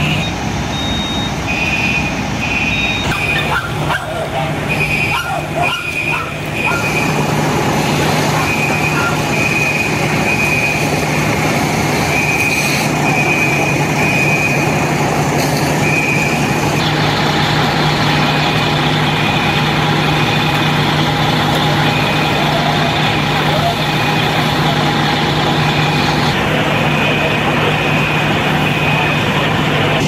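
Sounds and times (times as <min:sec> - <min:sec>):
high-pitched beeps: 0:00.0 - 0:03.5
diesel engine droning: 0:00.0 - 0:30.0.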